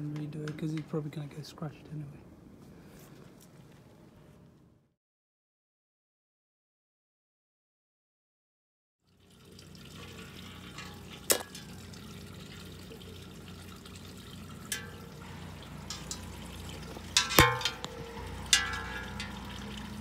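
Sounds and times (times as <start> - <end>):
steady low hum: 9.8 - 20.0.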